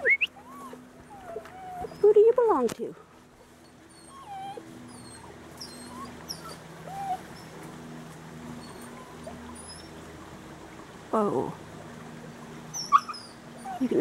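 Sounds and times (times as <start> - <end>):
dog whimpering: 0.0 - 2.4, 3.6 - 7.5, 8.6 - 10.0, 12.7 - 14.0.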